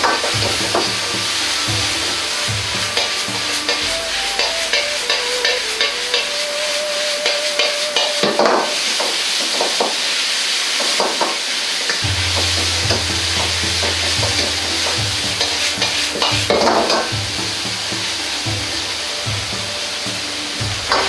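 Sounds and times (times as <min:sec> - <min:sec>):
metal ladle scraping a wok: 0:00.0 - 0:09.8
food sizzling in a wok: 0:00.0 - 0:21.0
low steady hum: 0:12.0 - 0:19.8.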